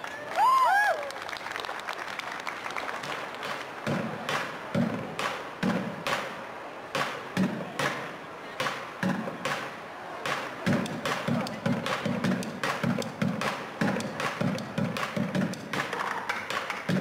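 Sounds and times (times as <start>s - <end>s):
applause: 0.0s - 4.6s, 14.2s - 17.0s
drumsticks beating plastic buckets: 3.4s - 17.0s.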